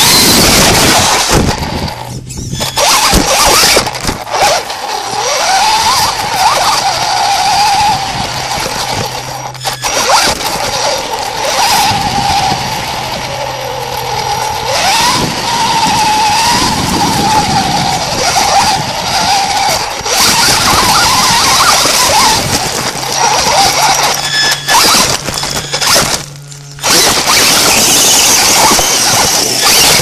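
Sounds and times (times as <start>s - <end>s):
scattered clicks: 0.0s - 30.0s
toy truck motor whine: 0.0s - 30.0s
tyres on gravel: 0.0s - 30.0s.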